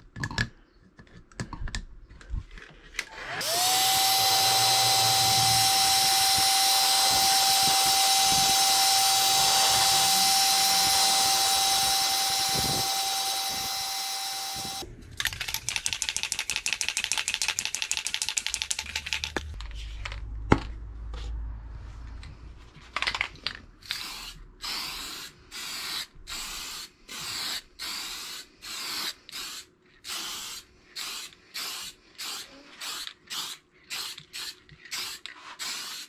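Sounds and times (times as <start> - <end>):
spray paint hissing bursts: 4.6 - 14.8, 23.8 - 36.0
spray can ball rattling: 15.2 - 20.2, 25.8 - 36.0.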